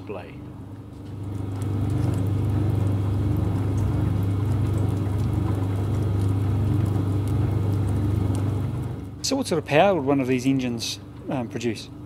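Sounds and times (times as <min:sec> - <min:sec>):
engine turning over with low hum: 0:00.9 - 0:09.8.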